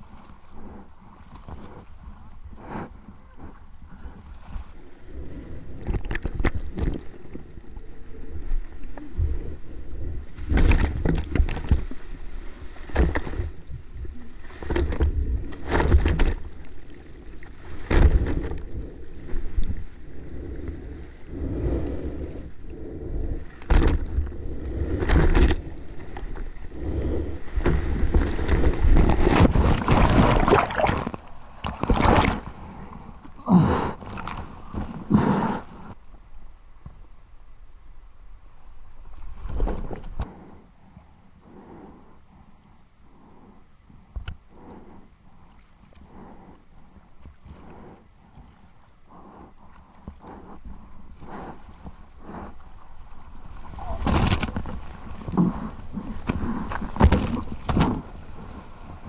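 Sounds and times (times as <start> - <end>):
water sloshing and splashing: 27.6 - 36.0, 49.6 - 59.0
churning water rush: 29.3 - 35.1.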